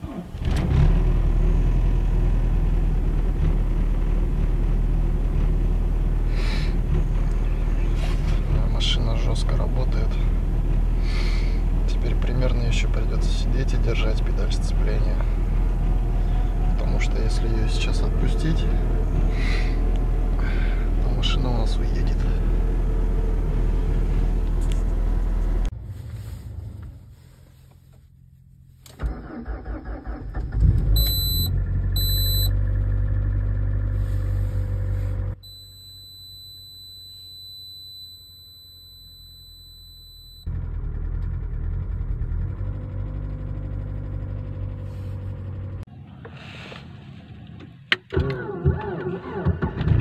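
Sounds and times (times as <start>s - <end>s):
engine revving: 0.0s - 27.1s, 29.2s - 39.3s, 40.0s - 45.9s
car engine idling: 1.1s - 28.8s, 29.4s - 46.2s
dashboard chimes beeping: 31.0s - 32.5s, 35.4s - 40.5s.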